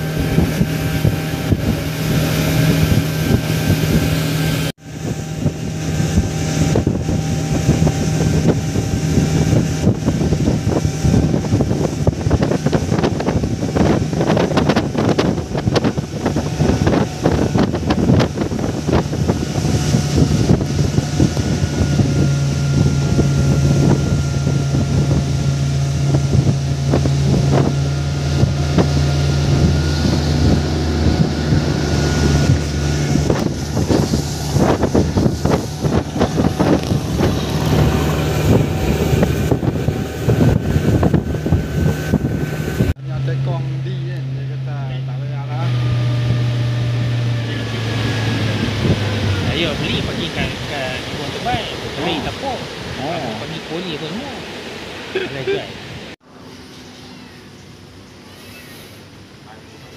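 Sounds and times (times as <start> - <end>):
wind buffeting microphone: 0.0 - 56.2
boat engine running: 0.0 - 59.9.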